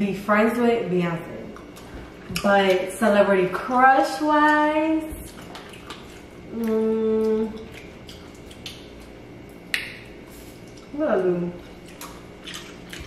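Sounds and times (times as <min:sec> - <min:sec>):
eating clicks and smacks: 0:01.5 - 0:02.9, 0:04.4 - 0:10.9, 0:11.7 - 0:13.0
woman humming: 0:06.5 - 0:07.6.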